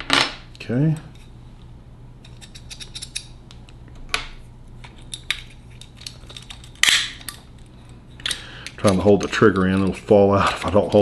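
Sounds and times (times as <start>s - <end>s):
metal parts clicking and clinking: 2.2s - 3.4s, 4.8s - 11.0s.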